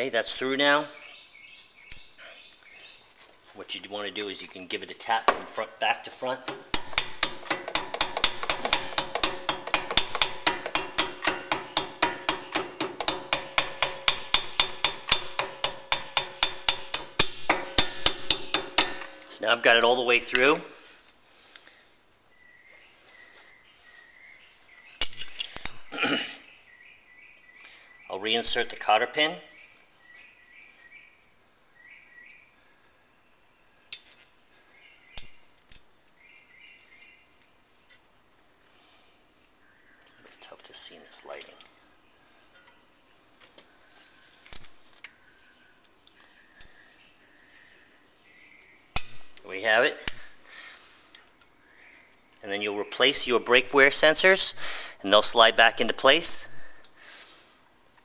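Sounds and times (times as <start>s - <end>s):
hammer tapping metal pin: 6.5s - 19.3s
faint bird chirps: 22.2s - 25.1s, 26.4s - 28.4s, 29.4s - 35.4s, 39.4s - 48.9s.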